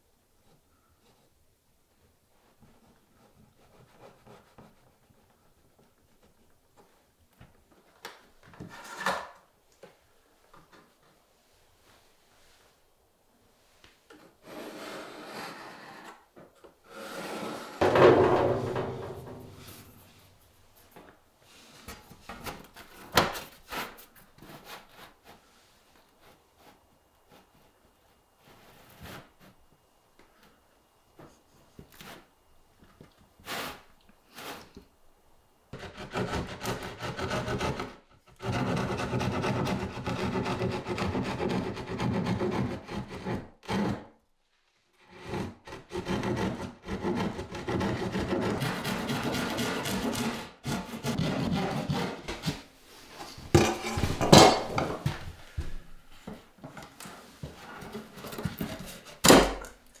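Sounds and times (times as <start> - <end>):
hand tool scraping on wood: 14.2 - 16.3, 16.9 - 20.2, 35.8 - 44.1, 45.0 - 59.3.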